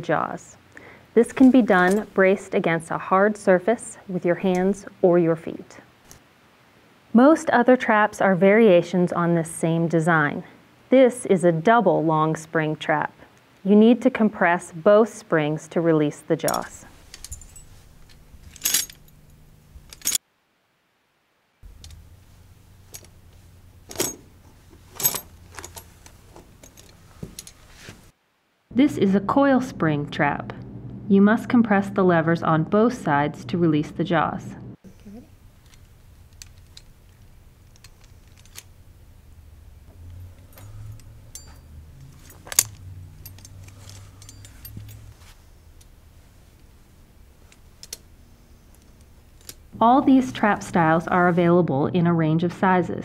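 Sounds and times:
chain rattling: 1.4 - 2.2, 16.4 - 20.2, 21.7 - 27.9, 35.6 - 38.8, 40.0 - 45.9
metal trap springs clicking: 40.4 - 45.0.

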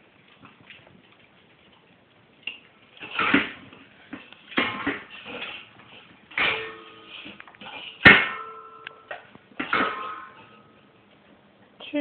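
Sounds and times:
dog eating from bowl: 0.0 - 11.3
metal bowl clanking: 4.1 - 10.8.

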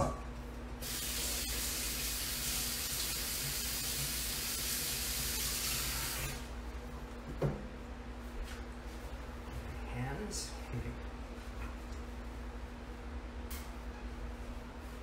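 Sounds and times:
water running from tap: 0.8 - 6.4.

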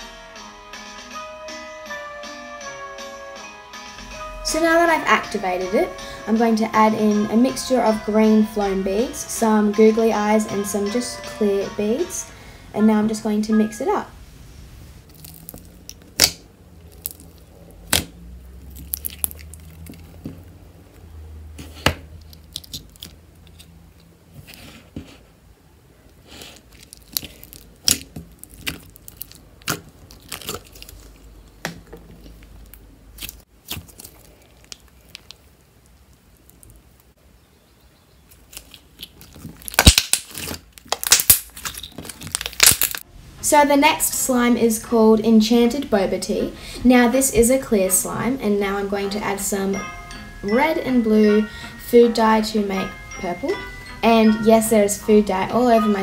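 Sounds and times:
slime clicking and popping: 15.1 - 18.1, 18.7 - 20.0, 26.8 - 30.9, 38.5 - 43.0.

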